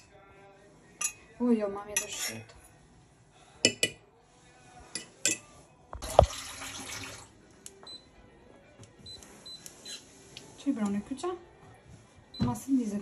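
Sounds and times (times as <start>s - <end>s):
teaspoon clinking on metal pot: 1.0s - 1.3s, 1.9s - 2.4s, 3.6s - 4.0s, 4.9s - 5.5s
water pouring: 6.0s - 7.4s.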